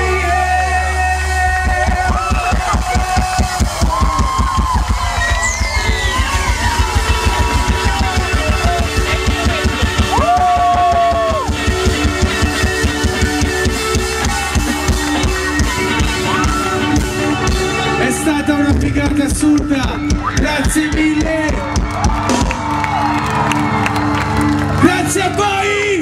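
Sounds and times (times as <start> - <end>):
person singing: 0.0 - 4.2
electric guitar: 0.0 - 25.8
drum kit beat: 1.4 - 23.8.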